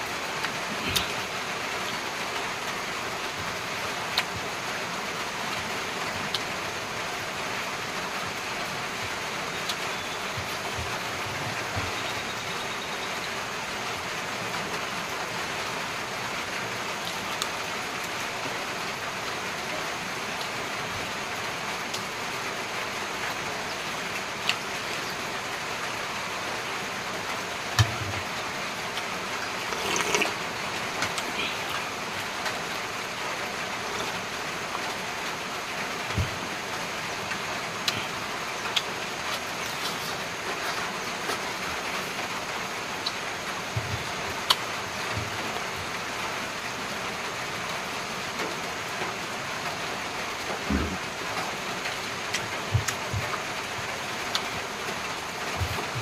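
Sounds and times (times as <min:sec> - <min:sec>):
sharp eating clicks: 0:00.4 - 0:01.4, 0:37.3 - 0:41.5, 0:54.3 - 0:54.5.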